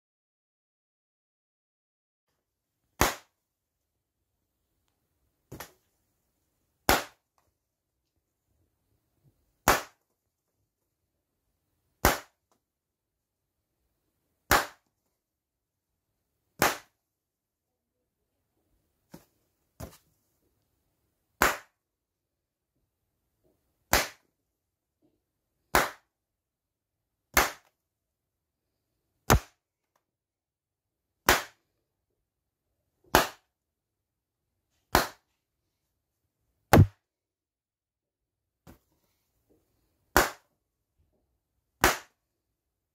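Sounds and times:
balloons popping: 3.0s - 3.4s, 6.9s - 7.3s, 12.0s - 12.4s, 29.3s - 29.6s, 36.7s - 37.0s.

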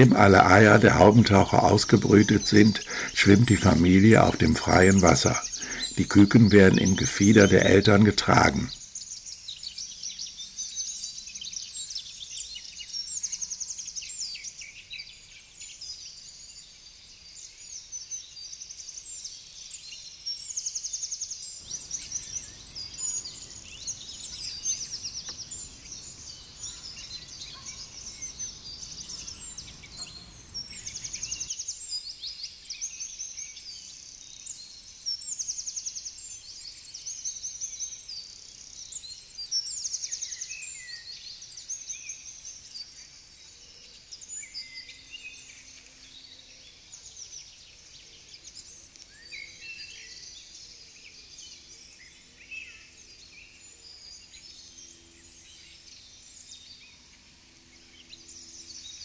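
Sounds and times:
faint low noise: 0.0s - 9.1s
songbirds chirping and trilling: 0.0s - 59.0s.

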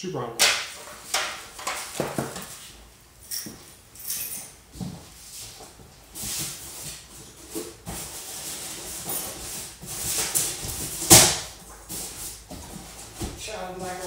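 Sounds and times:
cardboard rustling and scraping: 4.8s - 14.0s.

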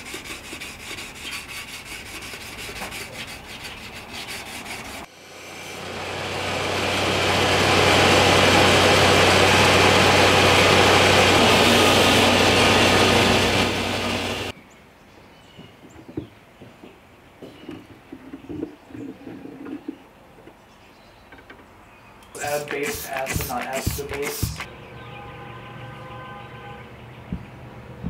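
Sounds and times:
workshop machine humming: 5.0s - 14.5s, 22.2s - 26.8s
abrasive rubbing on steel blade: 22.4s - 24.7s.

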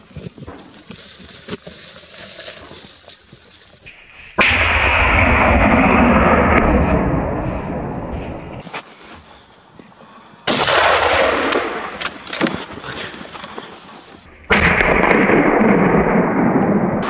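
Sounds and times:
gunshots with rolling echo: 4.0s - 8.6s, 10.5s - 12.4s, 14.3s - 17.0s.

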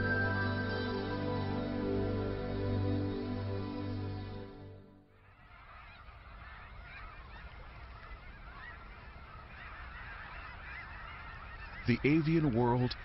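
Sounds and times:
flock of birds chattering: 5.1s - 13.0s.

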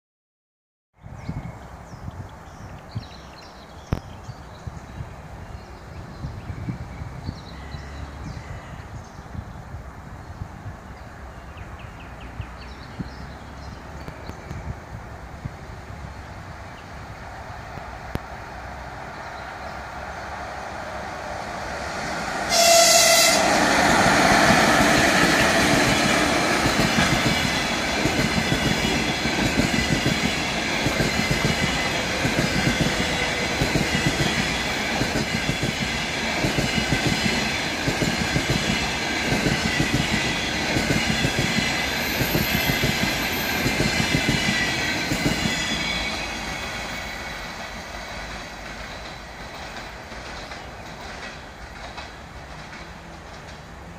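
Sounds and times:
train passing at speed: 1.1s - 53.9s
train horn blast: 22.4s - 24.4s.

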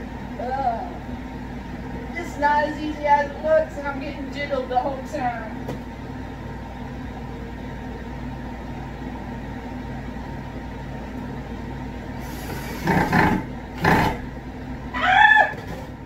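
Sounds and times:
fan hum: 0.0s - 16.0s
laundry machine running: 0.0s - 16.0s
loud noisy bursts: 12.2s - 14.2s.

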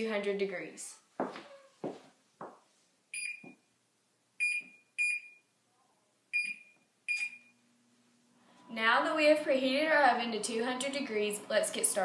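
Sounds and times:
oven control panel beeps: 4.4s - 5.4s, 6.4s - 7.6s.

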